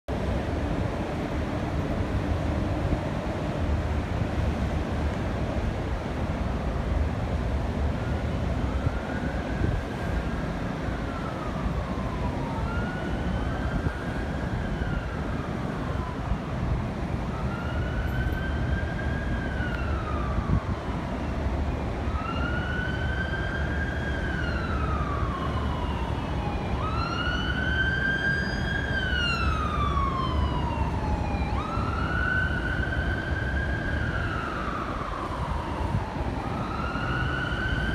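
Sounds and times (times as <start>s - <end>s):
emergency siren wailing: 6.9s - 37.9s.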